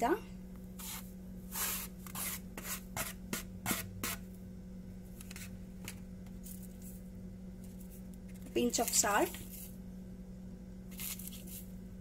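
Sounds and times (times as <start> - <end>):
spoon scraping a paper plate: 0.8 - 4.2.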